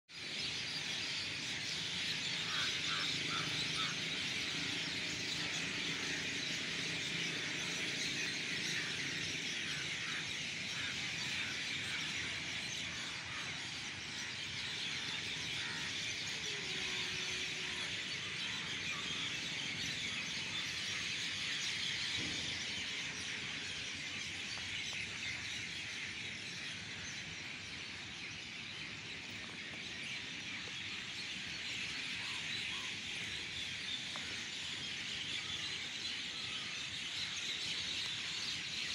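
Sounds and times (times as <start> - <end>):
flock of birds calling: 0.2 - 38.9.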